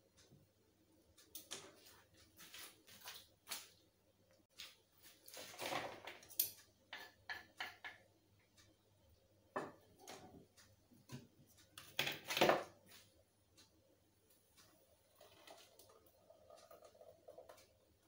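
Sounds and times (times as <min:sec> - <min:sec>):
kitchenware clattering: 0:05.4 - 0:08.0.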